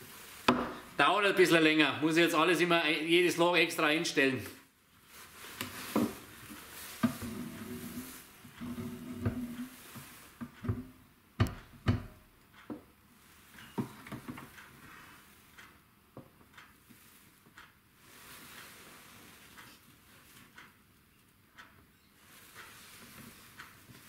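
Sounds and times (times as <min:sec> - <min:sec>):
wooden board knocks and clunks: 0:00.5 - 0:00.8, 0:10.6 - 0:12.2.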